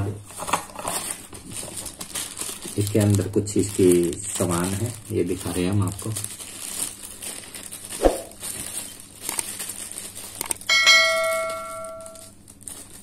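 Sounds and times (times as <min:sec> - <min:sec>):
bell chime: 0:10.7 - 0:12.2.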